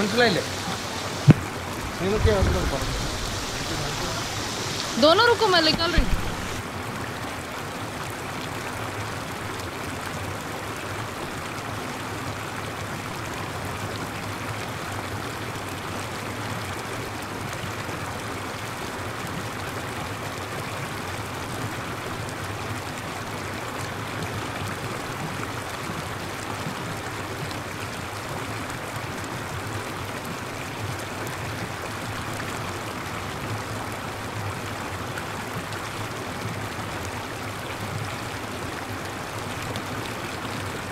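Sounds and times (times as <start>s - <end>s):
water showering down: 0.0s - 6.6s.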